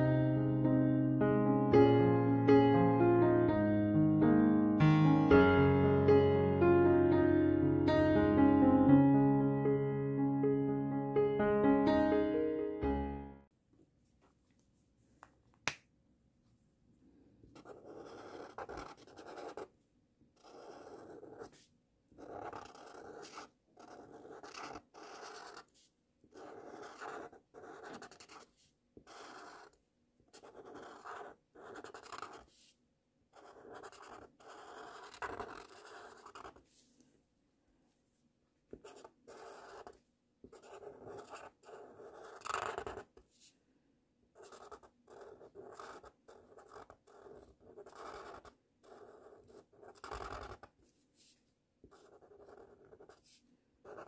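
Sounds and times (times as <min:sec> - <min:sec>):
felt-tip marker scratching on paper: 0:17.6 - 0:19.7, 0:20.4 - 0:32.7, 0:33.4 - 0:36.7, 0:38.8 - 0:43.1, 0:44.4 - 0:54.0.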